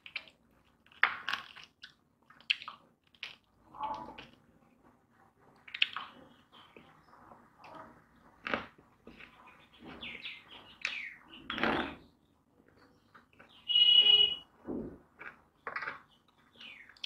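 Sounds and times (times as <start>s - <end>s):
man chewing: 0.0s - 3.6s.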